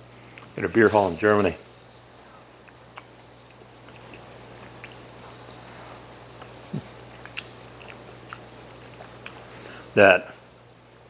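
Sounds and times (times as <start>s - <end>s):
man chewing quietly: 0.0s - 0.6s, 1.6s - 11.0s
steady low hum: 0.0s - 11.0s.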